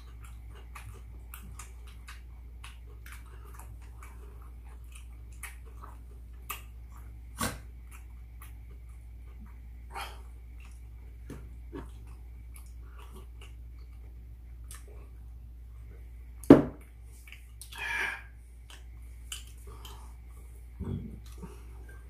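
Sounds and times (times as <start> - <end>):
chewing: 0.0 - 15.3, 18.6 - 22.0
loud knock on table: 16.5 - 16.8.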